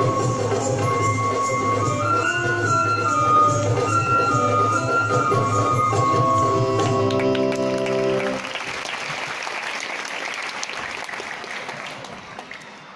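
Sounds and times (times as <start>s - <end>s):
audience applause: 7.0s - 12.9s.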